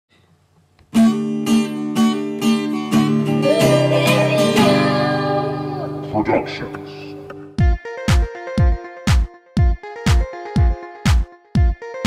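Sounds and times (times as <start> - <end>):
acoustic guitar strumming: 0.9 - 8.8.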